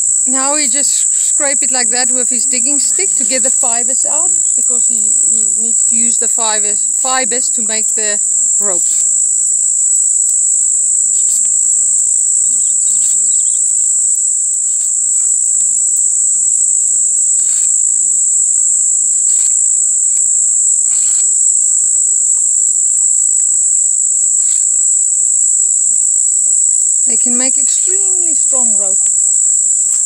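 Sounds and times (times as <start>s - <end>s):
high-pitched insect drone: 0.0s - 30.0s
stick scraping leaf: 19.2s - 21.4s.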